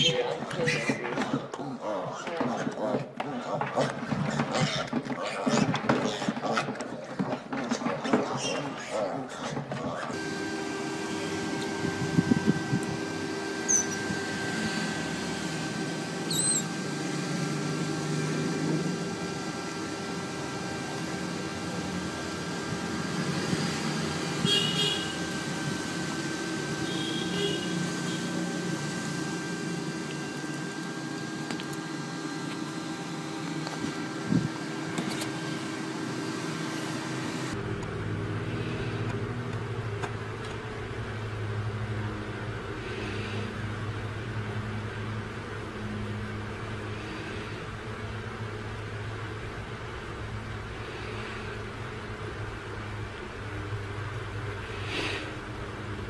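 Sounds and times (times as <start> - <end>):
room hum: 0.0 - 56.0
otter squeaks and chirps: 16.3 - 16.7.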